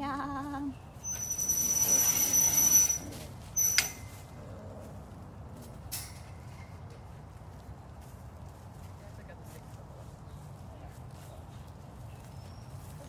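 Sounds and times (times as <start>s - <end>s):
metal door screeching on track: 1.0s - 4.2s
metal door clanking: 3.6s - 4.2s.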